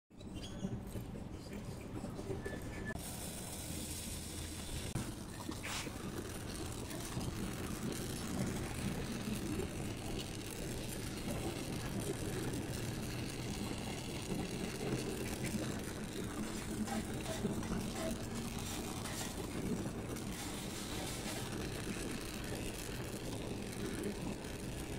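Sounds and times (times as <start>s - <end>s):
gas torch flame hissing: 2.9s - 24.9s
short scrape: 5.6s - 5.9s.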